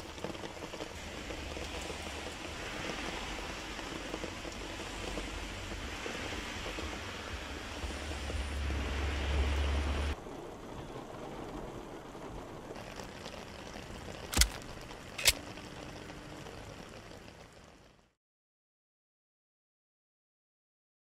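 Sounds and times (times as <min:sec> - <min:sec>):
water running along gutter: 0:00.0 - 0:10.2, 0:12.7 - 0:18.0
heavy rain pouring: 0:00.0 - 0:18.2.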